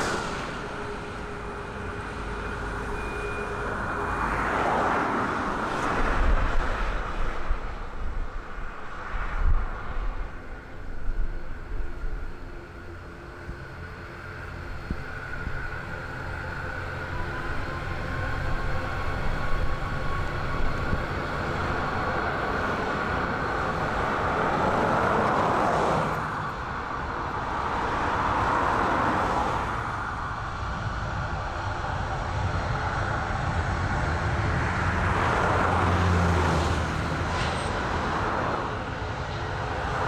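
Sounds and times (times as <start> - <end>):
jet engines at takeoff: 0.0 - 40.0.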